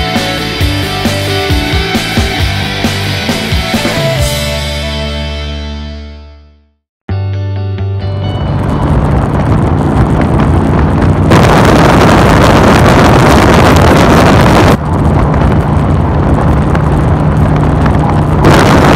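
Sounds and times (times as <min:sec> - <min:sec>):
wind noise on microphone: 0:08.1 - 0:18.9
motorcycle engine running: 0:08.5 - 0:18.9.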